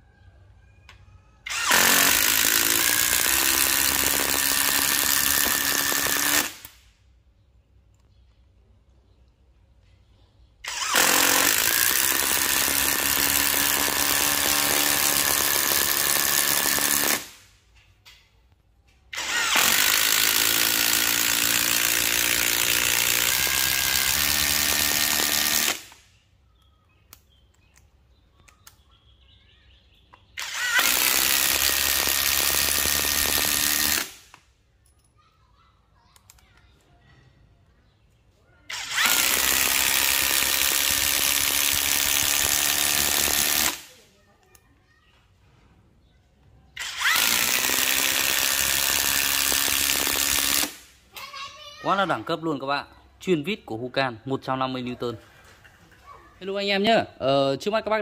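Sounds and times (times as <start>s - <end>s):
impact driver driving screws into wood: 1.5s - 6.8s, 10.6s - 17.5s, 19.1s - 26.2s, 30.3s - 34.5s, 38.7s - 44.0s, 46.8s - 50.9s.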